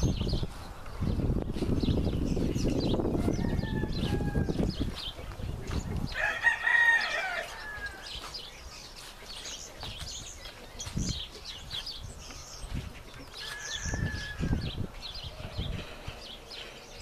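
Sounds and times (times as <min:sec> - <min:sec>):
small birds chirping: 0:00.0 - 0:17.0
rooster crowing: 0:03.2 - 0:04.7, 0:06.2 - 0:08.1, 0:13.4 - 0:14.8.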